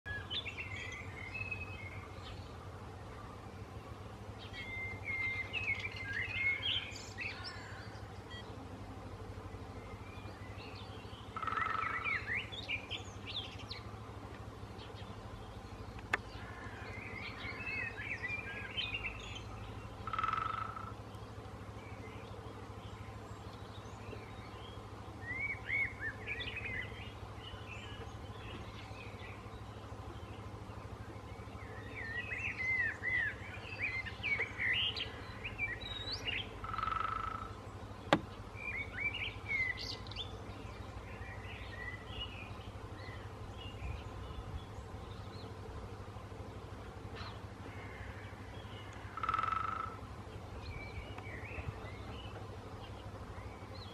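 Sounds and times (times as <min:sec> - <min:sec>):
small birds chirping: 0:00.1 - 0:53.9
woodpecker drumming on wooden pole: 0:11.3 - 0:12.0, 0:20.0 - 0:21.0, 0:36.5 - 0:38.4, 0:48.8 - 0:50.1.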